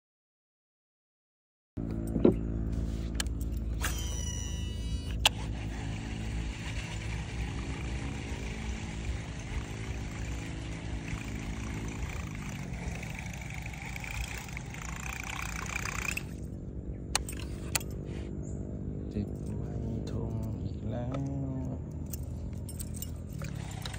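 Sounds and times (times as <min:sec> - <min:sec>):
low engine hum: 0:01.8 - 0:23.9
fishing reel whirring: 0:03.2 - 0:16.6, 0:21.9 - 0:23.9
lure churning water surface: 0:05.3 - 0:16.5.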